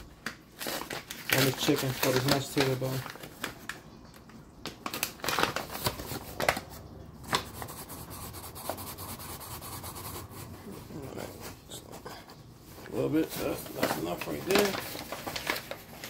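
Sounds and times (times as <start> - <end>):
flour bag rustling and crinkling: 0.0 - 7.8, 10.6 - 16.0
flour pouring into foil pan: 0.6 - 3.2, 12.9 - 16.0.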